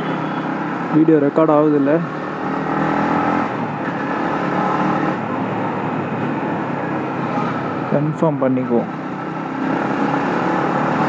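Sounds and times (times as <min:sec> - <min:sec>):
motorcycle engine cruising: 0:00.0 - 0:11.0
road and wind noise: 0:00.0 - 0:11.0.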